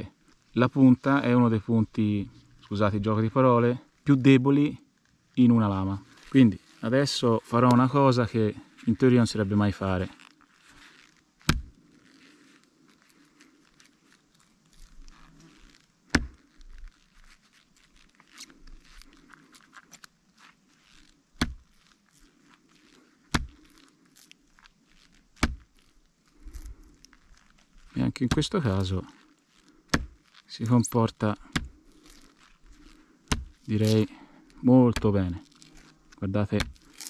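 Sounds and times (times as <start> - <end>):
bark scraping and crackling: 9.8 - 37.0.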